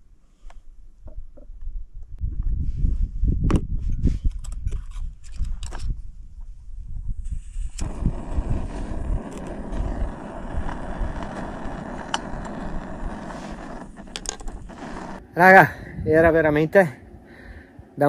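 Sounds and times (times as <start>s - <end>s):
camping stove hissing: 7.7s - 15.2s.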